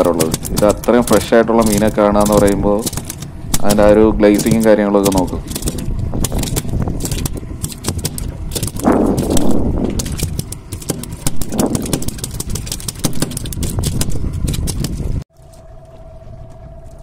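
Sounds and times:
boat engine rumbling and clattering: 0.0s - 17.0s
rushes of noise: 5.4s - 12.8s.

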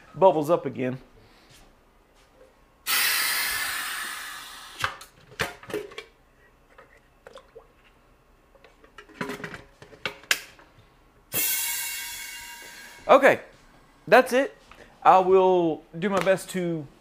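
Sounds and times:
air valve hissing: 2.8s - 4.8s, 11.4s - 13.1s.

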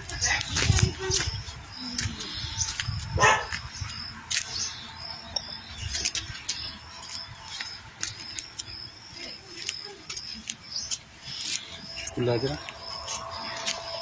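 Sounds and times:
dog barking: 3.2s - 3.6s.

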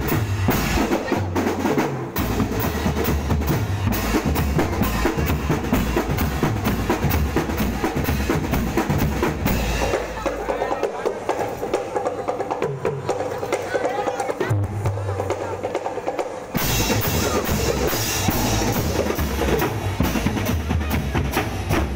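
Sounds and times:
bass drums beating: 0.0s - 11.8s, 16.6s - 21.9s
snare drums beating: 0.0s - 21.9s.

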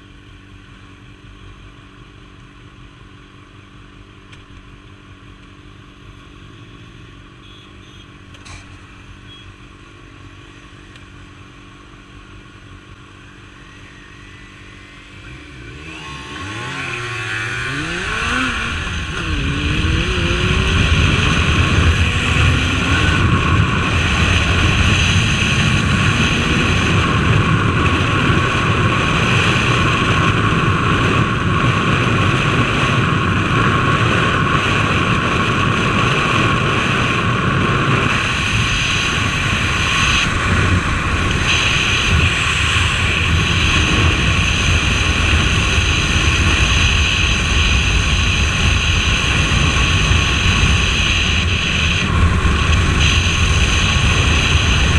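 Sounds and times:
motorcycle engine drone: 0.0s - 54.9s
wind rush over microphone: 15.8s - 54.9s.

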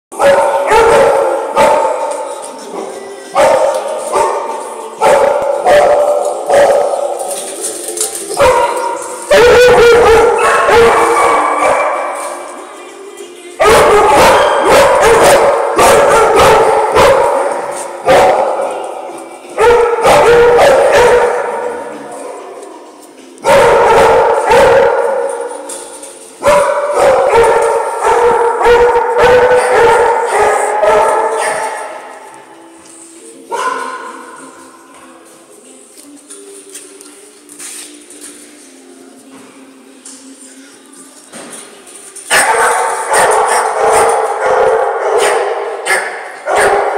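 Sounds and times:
dogs barking and howling: 0.2s - 2.2s, 8.3s - 12.4s, 13.6s - 18.8s, 19.6s - 22.6s, 23.4s - 25.8s, 26.4s - 32.0s, 42.3s - 46.9s.

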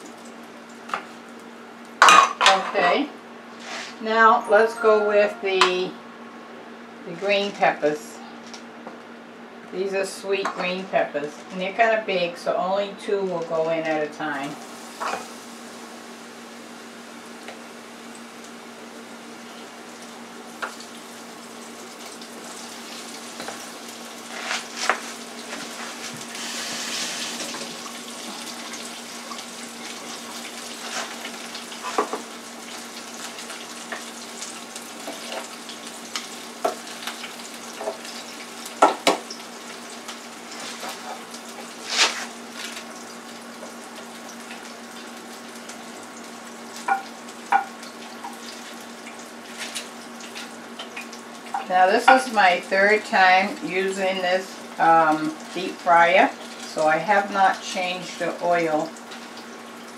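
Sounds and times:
hot oil sizzling in a deep fryer: 0.0s - 4.1s, 7.0s - 59.9s
low steady hum: 0.0s - 41.8s.

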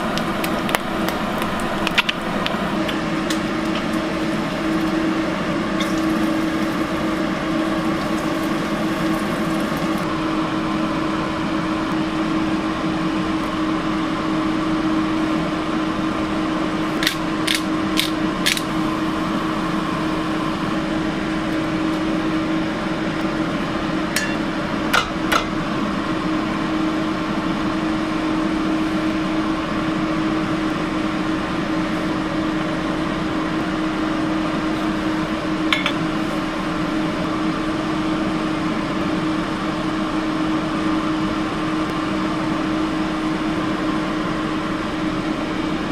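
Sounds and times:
exhaust fan hum: 0.0s - 45.9s.

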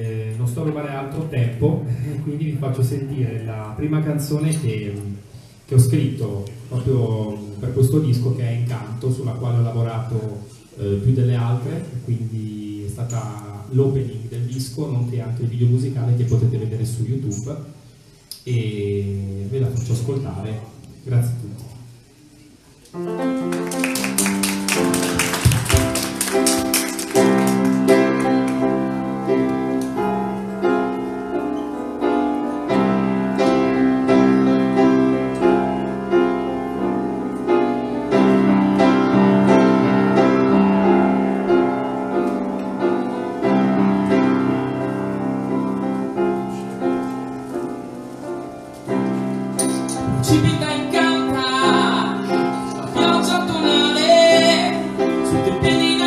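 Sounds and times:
grand piano chords: 22.8s - 56.0s
person singing: 50.3s - 56.0s.

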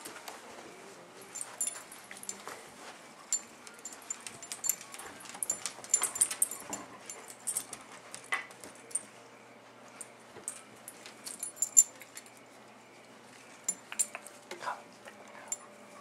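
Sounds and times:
collar tags jingling: 1.2s - 9.1s, 10.0s - 12.5s, 13.5s - 14.4s, 15.3s - 16.0s.

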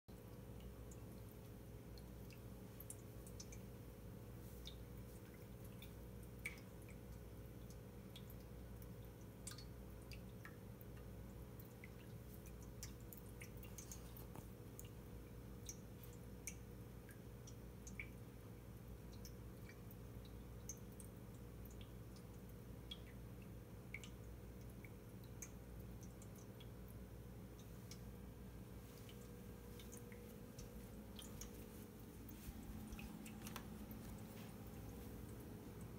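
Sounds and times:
steady low hum: 0.1s - 35.9s
cat lapping water: 0.3s - 18.2s, 28.8s - 35.9s.

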